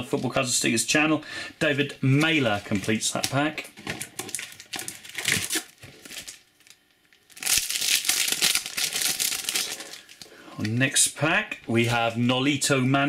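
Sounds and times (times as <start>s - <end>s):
card pack wrapper crinkling: 2.2s - 10.3s
wrapper tearing open: 4.0s - 10.2s.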